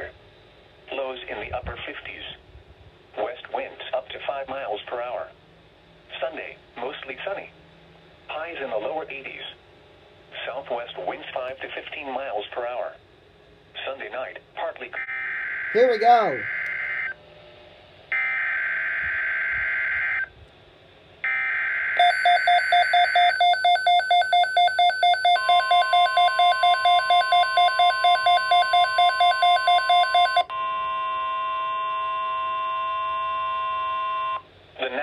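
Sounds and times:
steady alert tone: 0:15.8 - 0:16.6
rapid pulsing alert beep: 0:22.0 - 0:30.4.

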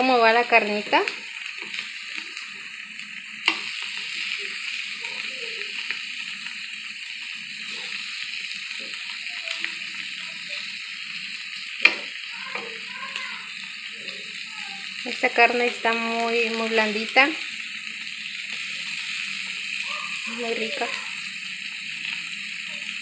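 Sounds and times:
meat sizzling on grill: 0:00.0 - 0:23.0
metal tongs clicking on grill: 0:03.4 - 0:04.0, 0:11.8 - 0:12.7.

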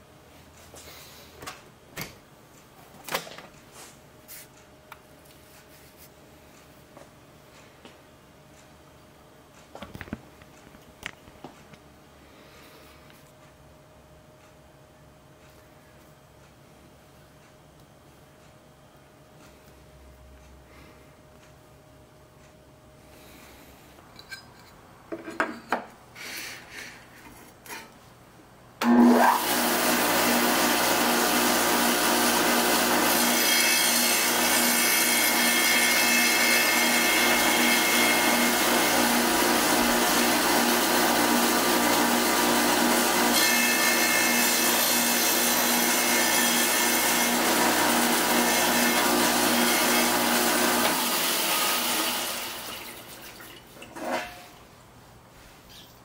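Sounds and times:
wet tile saw cutting glass: 0:29.2 - 0:52.8.

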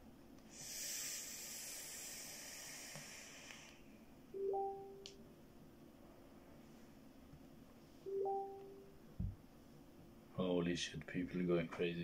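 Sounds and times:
steady hiss: 0:00.4 - 0:04.2
two-note electronic chime: 0:04.4 - 0:05.1, 0:08.1 - 0:09.0.

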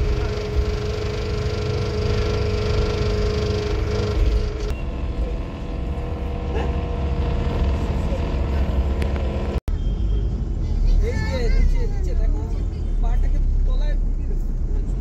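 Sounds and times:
steady hum: 0:00.0 - 0:09.6
coach engine and road rumble: 0:00.0 - 0:15.0.

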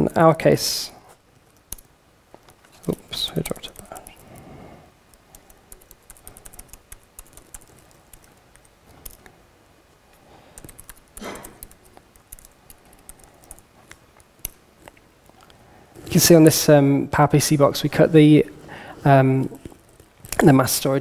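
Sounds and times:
typing on a laptop keyboard: 0:01.4 - 0:02.6, 0:03.2 - 0:04.5, 0:05.1 - 0:09.3, 0:10.5 - 0:15.0, 0:19.6 - 0:20.6.

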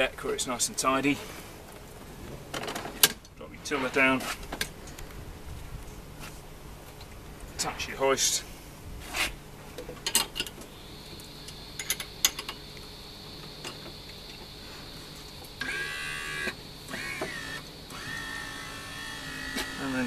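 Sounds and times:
electric lift motor whining: 0:15.6 - 0:20.0.

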